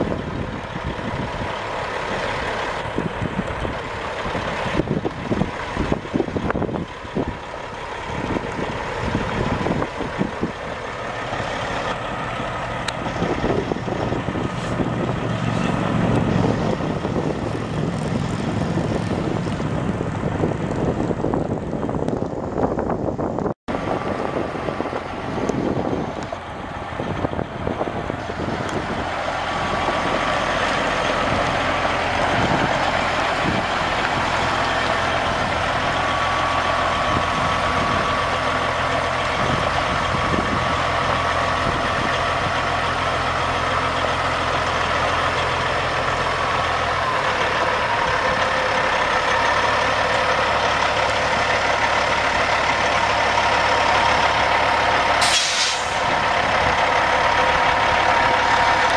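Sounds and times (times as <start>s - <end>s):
diesel truck engine idling: 0.0s - 58.9s
burst of hiss: 55.2s - 56.0s.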